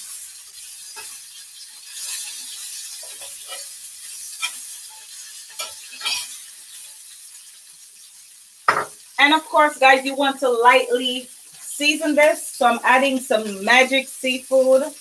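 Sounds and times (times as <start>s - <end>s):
food sizzling in a skillet: 0.0s - 15.0s
utensil scraping a pan: 1.8s - 7.0s.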